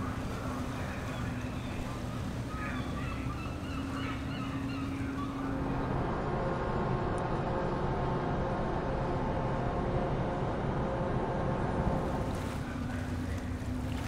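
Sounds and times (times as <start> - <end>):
faint wavering voices: 0.0 - 6.1, 12.0 - 14.0
machinery low hum: 0.0 - 14.0
wind: 0.0 - 14.0.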